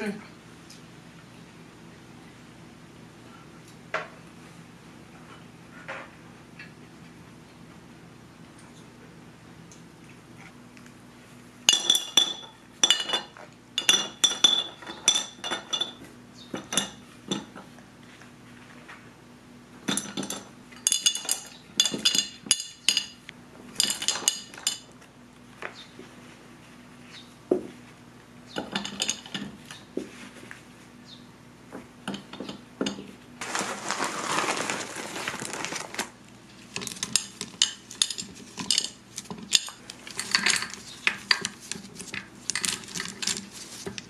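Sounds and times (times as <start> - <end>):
fruit and sugar clinking in glass jar: 11.7 - 16.0, 19.9 - 23.2, 36.8 - 41.5.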